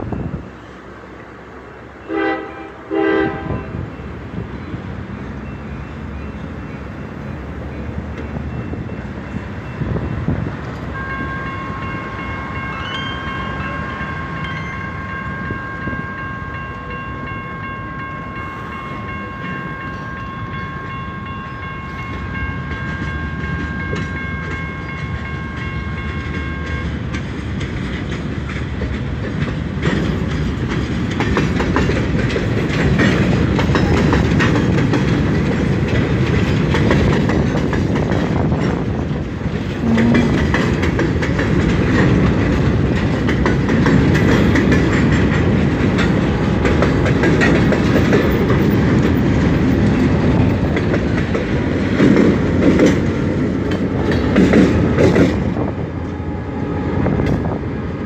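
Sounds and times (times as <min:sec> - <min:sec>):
train horn chord: 0:02.0 - 0:03.8, 0:39.8 - 0:40.6
freight cars rumbling and clacking: 0:03.4 - 0:58.0.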